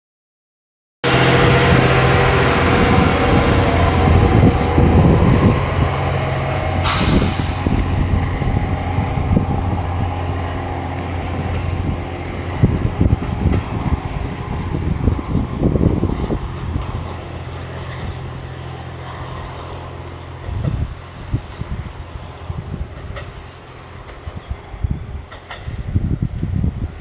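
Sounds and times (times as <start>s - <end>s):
diesel engine humming: 1.0s - 25.2s
hissing air burst: 6.8s - 7.9s.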